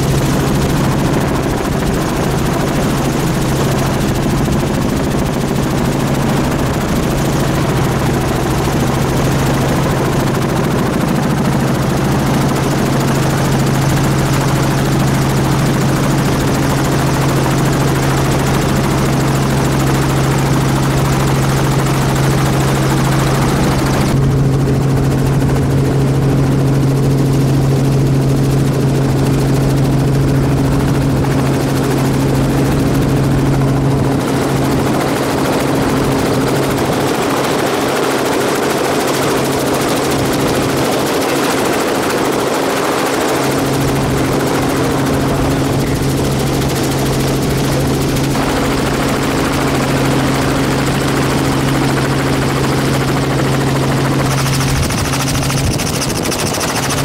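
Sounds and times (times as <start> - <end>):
helicopter rotor and turbine drone: 0.0 - 57.0.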